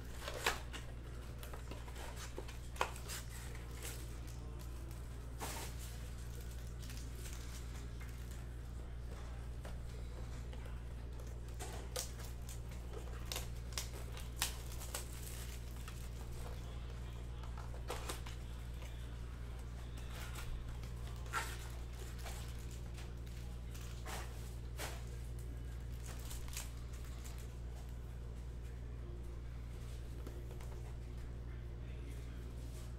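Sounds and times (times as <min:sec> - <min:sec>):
cardboard flaps and foil packs: 0:00.0 - 0:27.9
steady low hum: 0:00.0 - 0:32.9
shrink-wrap tearing and crinkling: 0:11.5 - 0:16.4, 0:25.9 - 0:27.5.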